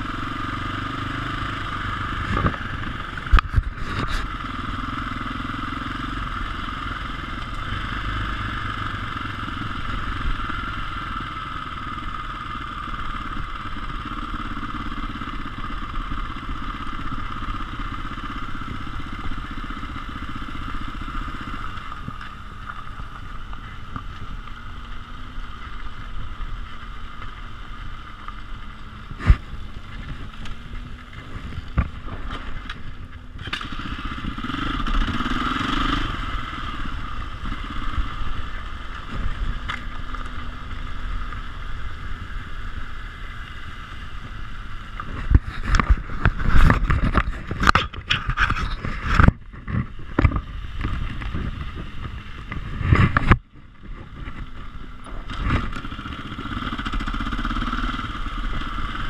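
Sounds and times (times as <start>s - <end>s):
dirt bike engine: 0.0s - 59.0s
bike knocking and rattling: 11.8s - 36.1s, 44.2s - 59.0s.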